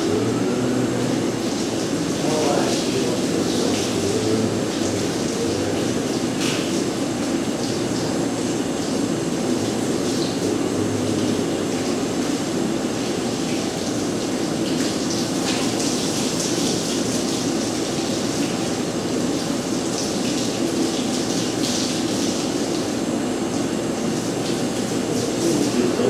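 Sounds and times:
steady motor drone: 0:00.0 - 0:13.8
water spraying and splashing: 0:00.1 - 0:26.0.

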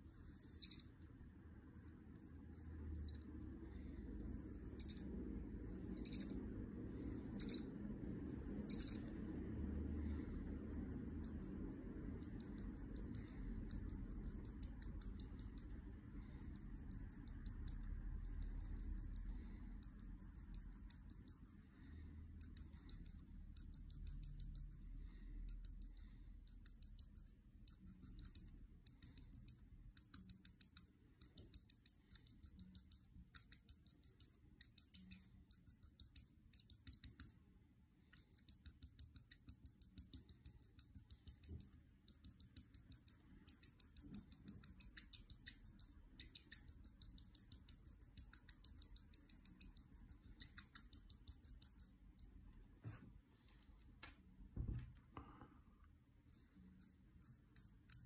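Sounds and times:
marker scratching on paper: 0:00.0 - 0:01.0, 0:04.2 - 0:09.1, 0:10.6 - 0:21.6, 0:56.3 - 0:58.0
faint low rumble: 0:00.0 - 0:27.8.

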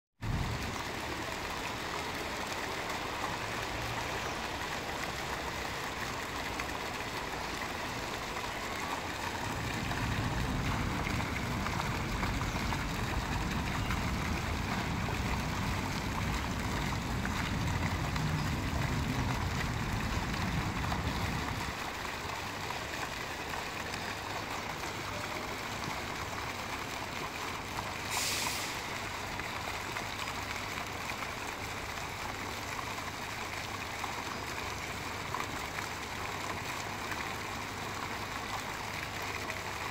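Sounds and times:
fountain splashing into pool: 0:00.2 - 0:39.9
low rumble of traffic: 0:00.2 - 0:39.9
brief hiss: 0:28.1 - 0:28.8.

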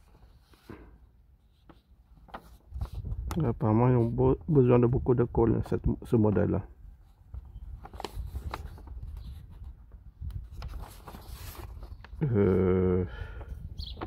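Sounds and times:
paper sheet crinkling: 0:01.4 - 0:04.8, 0:06.4 - 0:12.2
man humming: 0:12.2 - 0:13.2.

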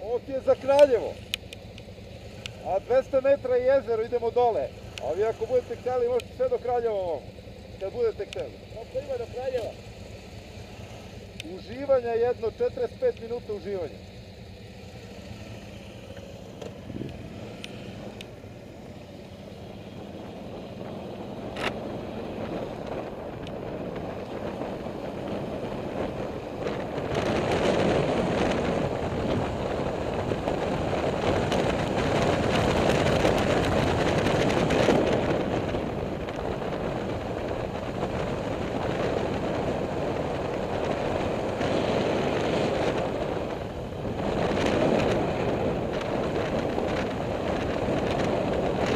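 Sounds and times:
motorcycle engine: 0:00.0 - 0:48.9
wind rushing over microphone: 0:16.6 - 0:18.9, 0:19.6 - 0:48.9.

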